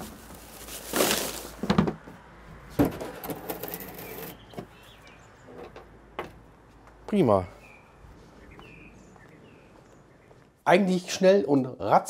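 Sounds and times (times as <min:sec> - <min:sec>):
plastic sack rustling: 0:00.0 - 0:01.9.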